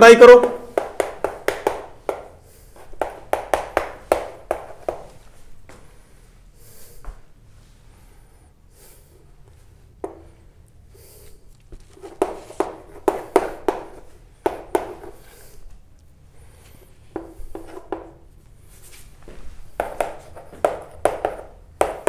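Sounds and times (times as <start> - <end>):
sharp taps on board: 0.4 - 2.3, 2.9 - 5.1, 19.8 - 22.0
chalk scratching on board: 11.8 - 14.0, 17.2 - 18.1.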